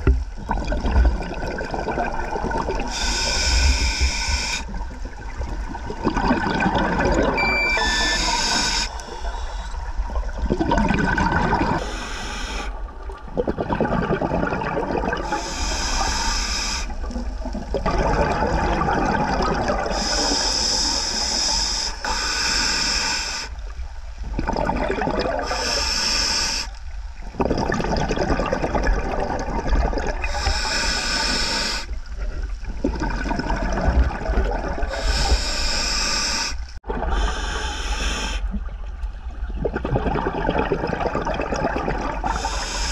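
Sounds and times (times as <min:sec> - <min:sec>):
rush of bubbles underwater: 0:00.0 - 0:07.7, 0:09.8 - 0:11.9, 0:12.7 - 0:16.2, 0:16.9 - 0:20.7, 0:24.2 - 0:25.8, 0:27.2 - 0:30.6, 0:31.9 - 0:35.4, 0:38.4 - 0:42.9
regulator breathing hiss: 0:02.9 - 0:04.7, 0:07.8 - 0:09.9, 0:11.8 - 0:12.8, 0:15.2 - 0:17.1, 0:19.9 - 0:23.6, 0:25.4 - 0:26.8, 0:30.2 - 0:32.0, 0:34.9 - 0:38.5, 0:42.3 - 0:42.9.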